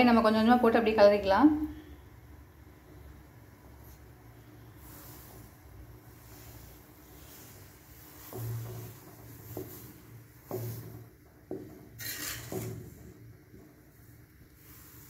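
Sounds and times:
spatula scraping clay pot: 0:04.8 - 0:13.3.

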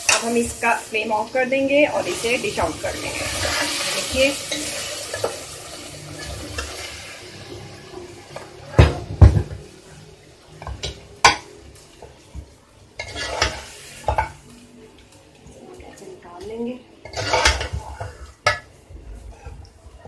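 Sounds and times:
metal spoon scraping a pot: 0:13.0 - 0:14.2, 0:17.0 - 0:19.7.

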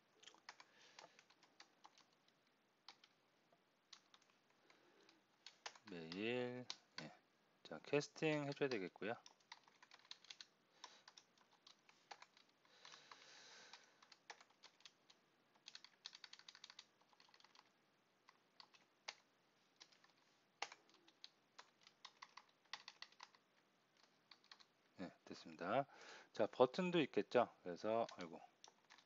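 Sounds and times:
typing on keyboard: 0:00.2 - 0:03.2, 0:03.9 - 0:07.1, 0:08.4 - 0:23.4, 0:24.0 - 0:24.7, 0:28.0 - 0:29.0.

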